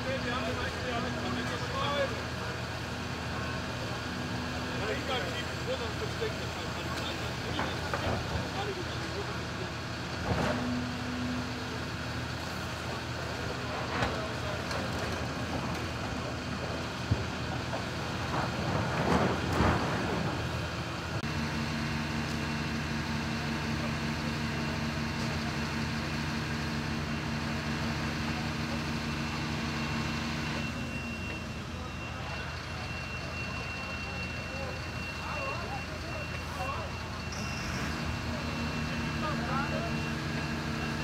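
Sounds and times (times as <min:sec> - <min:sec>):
diesel engines of heavy machinery: 0:00.0 - 0:41.0
excavator crunching roof debris: 0:18.2 - 0:20.6.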